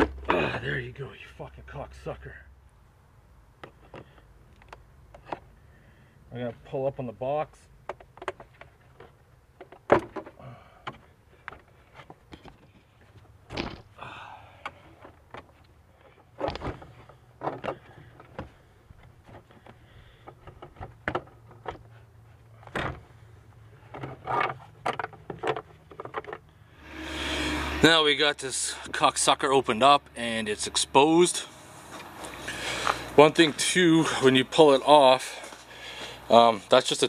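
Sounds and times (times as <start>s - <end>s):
low steady hum: 0.0s - 37.0s
plastic knocks clicks and rattles: 16.4s - 21.9s, 23.9s - 26.4s.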